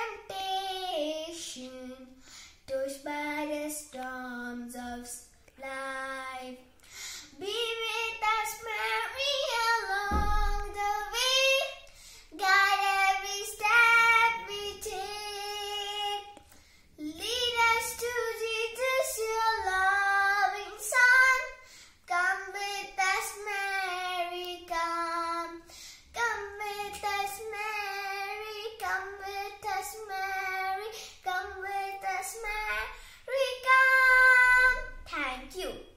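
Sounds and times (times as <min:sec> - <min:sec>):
girl singing a hymn: 0:00.0 - 0:35.9
low thump: 0:09.9 - 0:11.4.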